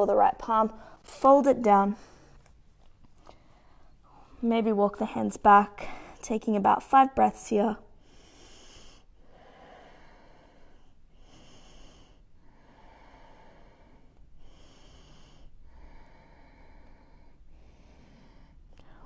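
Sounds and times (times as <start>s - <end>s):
woman breathing through nose: 8.0s - 19.0s.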